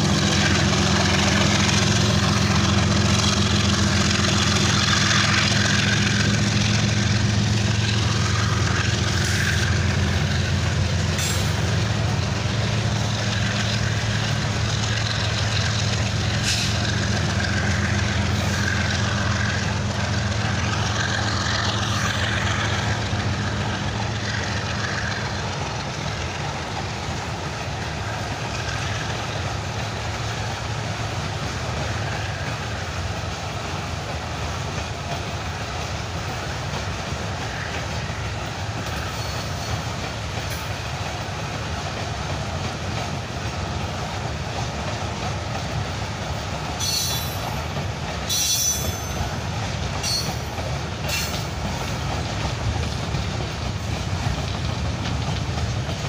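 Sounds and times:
train wheels rumbling on rail: 0.0 - 56.0
high-pitched wheel squeals: 46.8 - 47.5, 48.3 - 49.3, 50.0 - 50.5.

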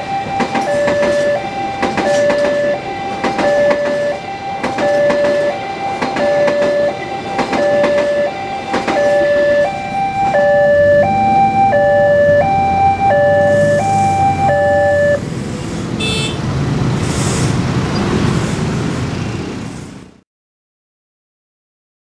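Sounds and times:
level crossing warning alarm: 0.0 - 15.2
road traffic moving off: 0.0 - 20.2.

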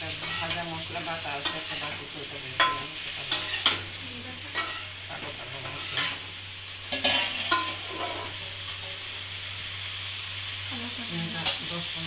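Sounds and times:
frying sizzle: 0.0 - 12.0
metal spatula scraping iron pan: 4.5 - 6.2, 6.9 - 9.0.

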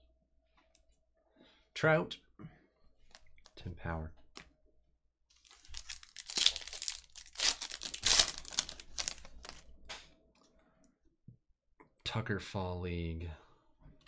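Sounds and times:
foil wrapper tearing and crinkling: 5.4 - 9.6.

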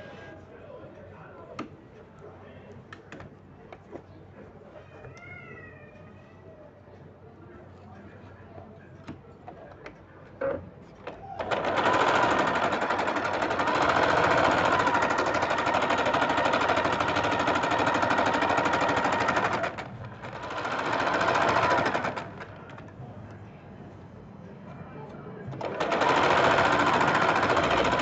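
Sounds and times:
sewing machine stitching: 11.4 - 22.8, 25.5 - 28.0.

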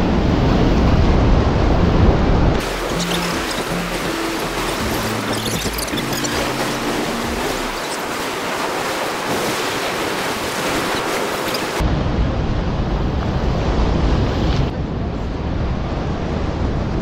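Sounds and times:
waves washing against stone blocks: 2.6 - 11.8.

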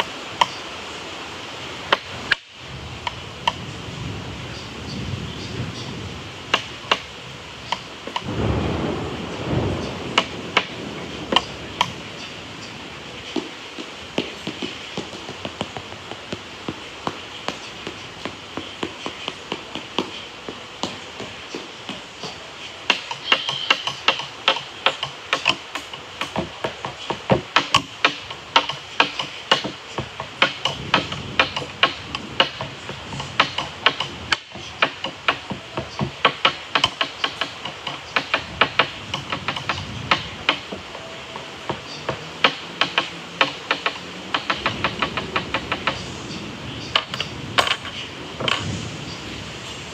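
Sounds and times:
rapid sharp taps: 13.3 - 40.8, 41.7 - 46.0, 46.9 - 48.6.

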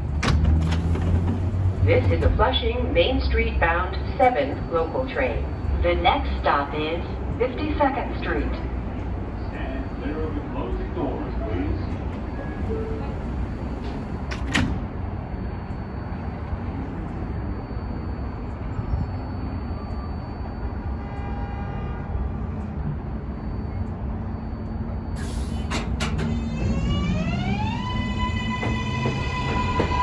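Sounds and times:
subway train low rumble: 0.0 - 30.0
traction motors whining: 22.4 - 30.0.

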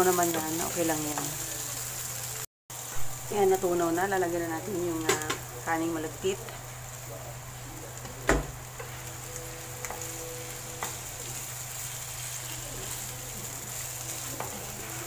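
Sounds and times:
pan sizzling: 0.0 - 15.0
spatula stirring in pan: 8.7 - 15.0.

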